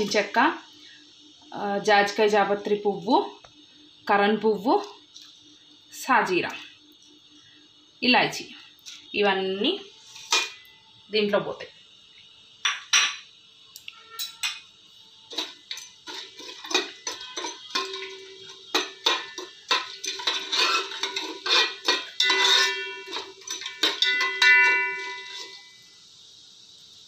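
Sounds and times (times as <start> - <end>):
spoon stirring in metal pot: 15.3 - 25.8
pot ringing from knocks: 16.7 - 25.8.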